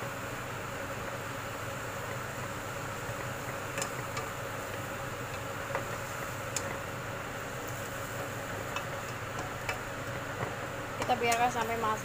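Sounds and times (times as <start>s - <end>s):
faint steady hum: 0.0s - 12.0s
greens sizzling in oil: 0.0s - 12.0s.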